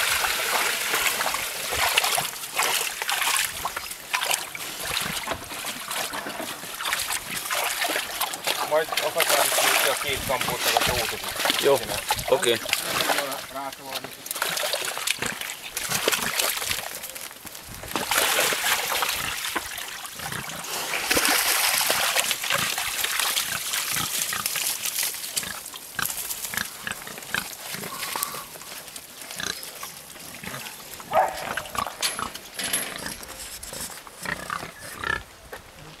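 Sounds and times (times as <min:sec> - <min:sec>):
mud squelching: 0:00.0 - 0:36.0
pigs grunting: 0:14.3 - 0:17.1, 0:20.1 - 0:21.3, 0:23.4 - 0:24.6, 0:25.4 - 0:36.0.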